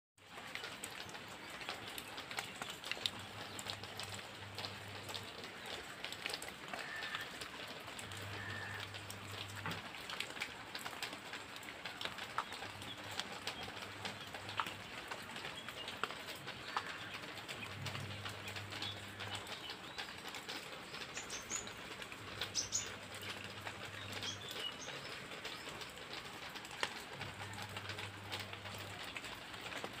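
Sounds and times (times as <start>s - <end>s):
light rain pattering on foliage: 0.2s - 30.0s.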